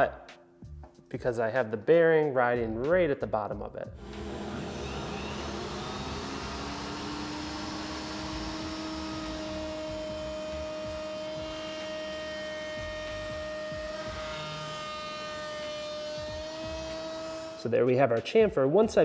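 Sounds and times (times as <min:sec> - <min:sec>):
router motor whine cutting wood: 0:04.0 - 0:17.7.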